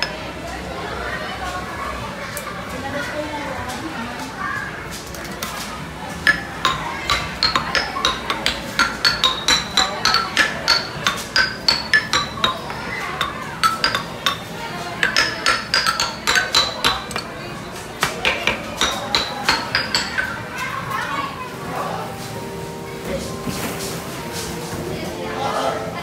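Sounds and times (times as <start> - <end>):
ringing clinks on hard objects: 6.3 - 17.6.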